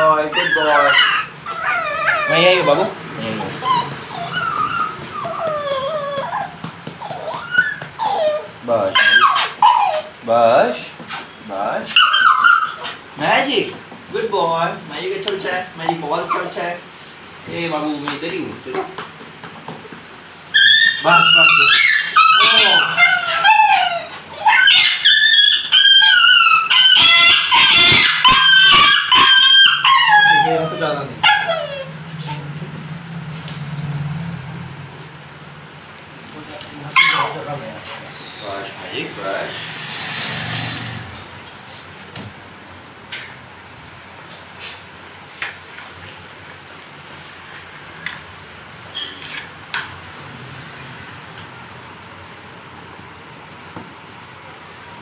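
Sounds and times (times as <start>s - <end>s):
puppy whining and crying: 0.0s - 13.3s, 15.5s - 16.9s, 18.6s - 32.9s, 36.7s - 41.2s
puppy yelping: 0.0s - 13.4s, 15.0s - 16.9s, 17.8s - 32.8s, 36.6s - 41.3s.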